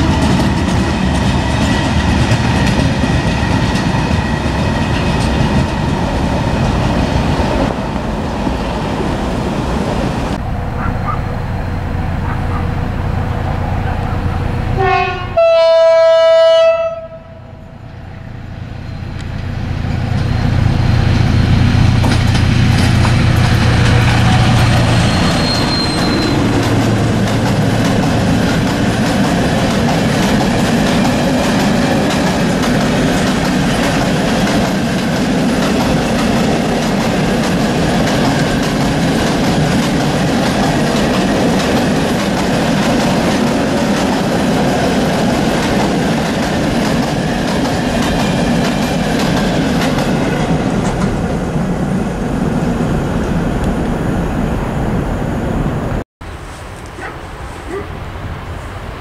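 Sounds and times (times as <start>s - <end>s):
wagon wheels clacking on rails: 0.0s - 7.0s, 21.8s - 51.2s
diesel locomotive passing: 0.0s - 59.0s
locomotive horn: 14.5s - 17.8s, 23.7s - 27.1s.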